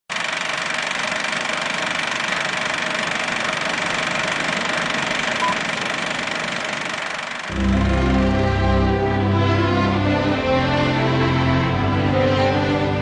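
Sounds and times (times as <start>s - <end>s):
machine running with rattle: 0.1s - 8.4s.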